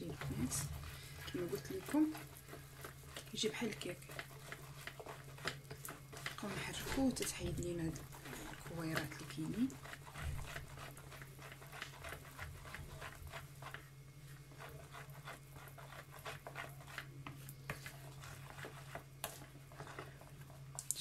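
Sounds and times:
faint low hum: 0:00.0 - 0:21.0
whisk beating batter in a bowl: 0:00.0 - 0:21.0.

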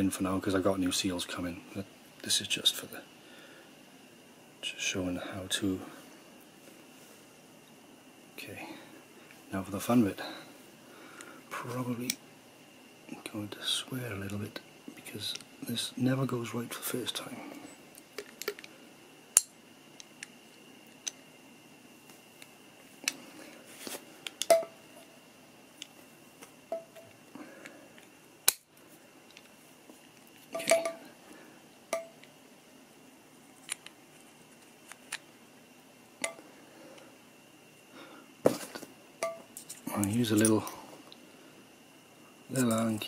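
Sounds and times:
metal parts clicking and clinking: 0:30.6 - 0:31.0.

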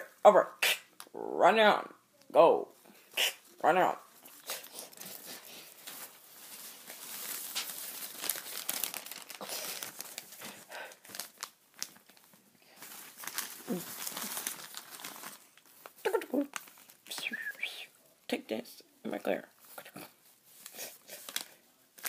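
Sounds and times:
paper rustling and crinkling: 0:04.2 - 0:17.4, 0:19.6 - 0:22.0.

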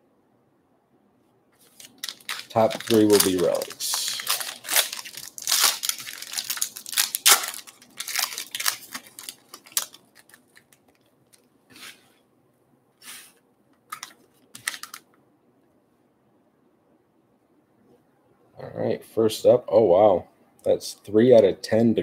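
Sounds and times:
card pack wrappers crinkling: 0:01.6 - 0:11.5, 0:13.9 - 0:15.1
cards and wrapper rustling: 0:01.6 - 0:11.5, 0:13.9 - 0:15.1.

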